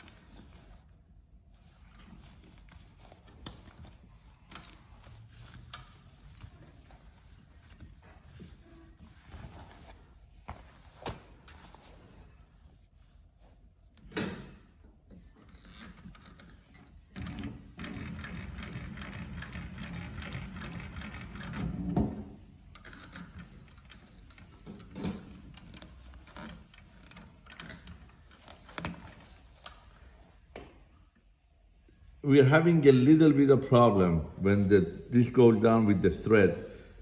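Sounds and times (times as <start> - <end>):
sewing machine stitching: 17.1 - 21.9.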